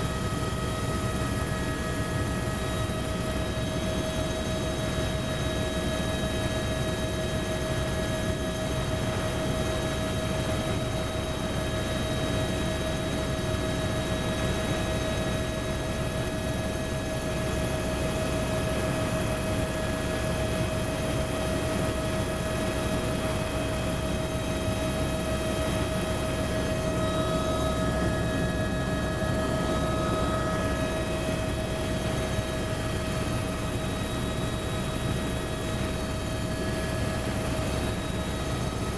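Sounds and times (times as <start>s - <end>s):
helicopter rotor and engine rumble: 0.0s - 38.9s
steady whining tones: 20.5s - 38.9s.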